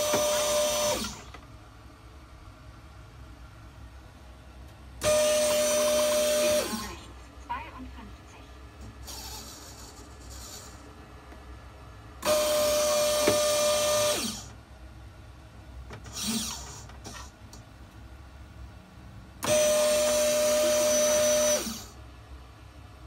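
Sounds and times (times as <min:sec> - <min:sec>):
servo motor whining: 0:00.0 - 0:01.3, 0:05.0 - 0:07.0, 0:12.2 - 0:14.5, 0:16.0 - 0:17.3, 0:19.4 - 0:22.0.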